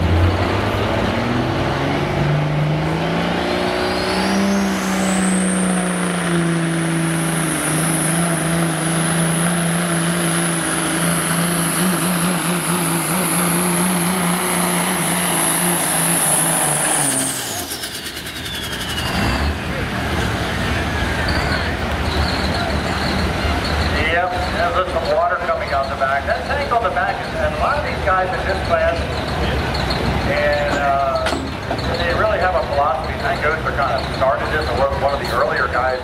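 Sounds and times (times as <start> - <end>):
truck diesel engine under load: 0.0 - 36.0
turbo whistle whine: 16.8 - 19.6.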